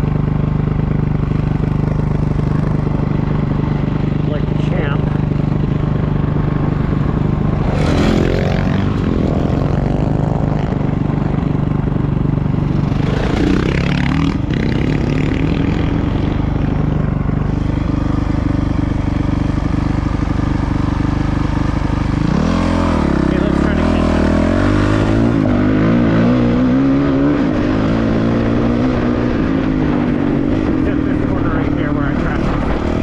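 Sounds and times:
dirt bike engine running: 0:00.0 - 0:33.0.

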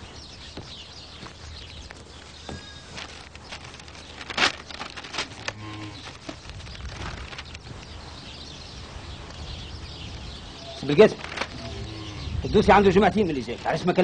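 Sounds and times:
paper sheets rustling: 0:01.8 - 0:08.0, 0:10.8 - 0:11.8.

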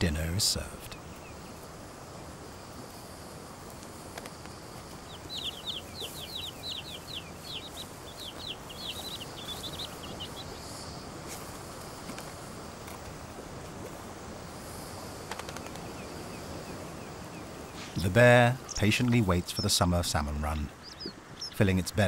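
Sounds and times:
steady hiss: 0:00.0 - 0:22.0
chicks chirping: 0:04.6 - 0:12.2, 0:15.5 - 0:22.0.

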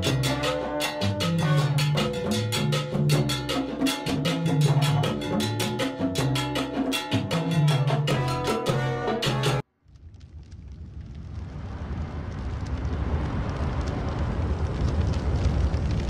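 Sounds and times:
bass line: 0:00.0 - 0:09.6
timbales and congas: 0:00.0 - 0:09.6.

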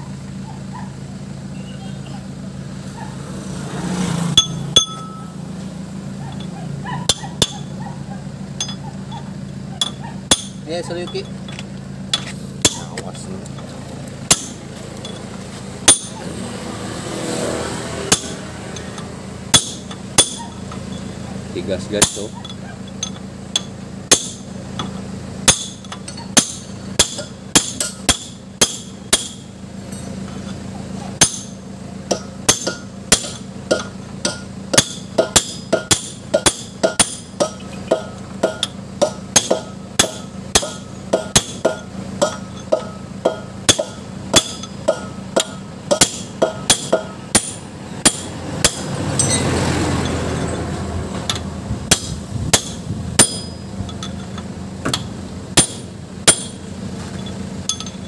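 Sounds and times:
steady low hum: 0:00.0 - 0:58.0
hammer striking steel bar: 0:04.3 - 0:05.4, 0:07.1 - 0:07.7, 0:08.6 - 0:08.8, 0:09.8 - 0:11.3, 0:12.1 - 0:13.0, 0:14.3 - 0:15.2, 0:15.8 - 0:16.3, 0:18.1 - 0:20.6, 0:22.0 - 0:30.6, 0:31.2 - 0:50.5, 0:51.3 - 0:56.6, 0:57.6 - 0:58.0.

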